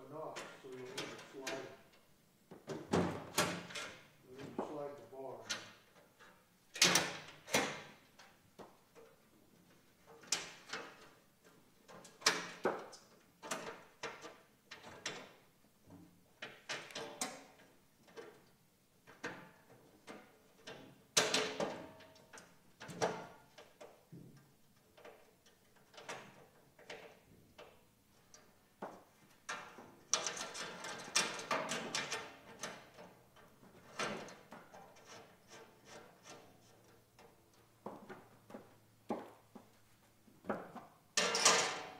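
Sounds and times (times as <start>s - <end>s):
metal box clicking and clanking: 29.5s - 33.2s, 41.2s - 41.9s.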